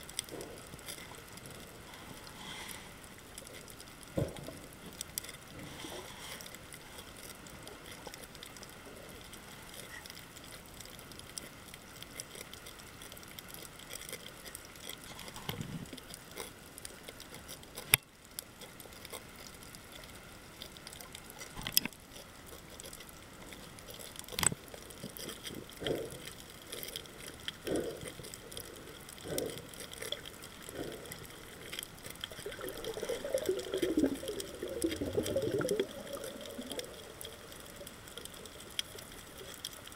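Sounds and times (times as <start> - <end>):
steady underwater hiss: 0.0 - 39.9
bubbly water sounds: 23.4 - 39.9.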